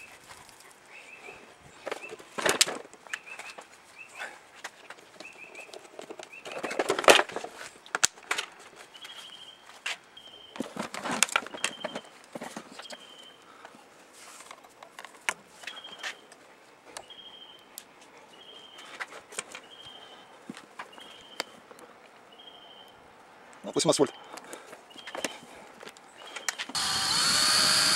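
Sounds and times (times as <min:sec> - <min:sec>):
bird chirping: 0:10.2 - 0:10.6, 0:11.5 - 0:12.1, 0:17.0 - 0:18.9, 0:19.6 - 0:20.3, 0:20.9 - 0:21.6, 0:22.3 - 0:23.0, 0:24.0 - 0:25.5.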